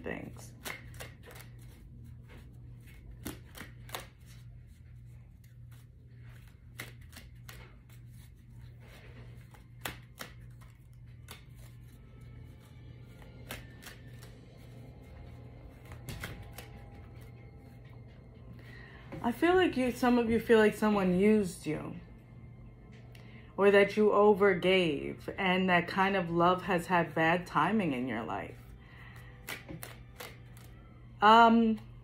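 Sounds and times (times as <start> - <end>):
cards being shuffled: 0.2 - 18.2, 28.5 - 30.8.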